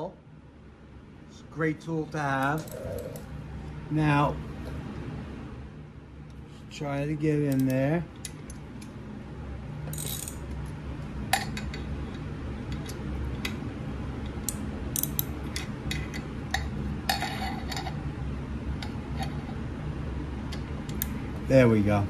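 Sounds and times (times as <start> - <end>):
steady low hum: 0.0 - 22.0
ratchet metal clicks: 14.5 - 15.3.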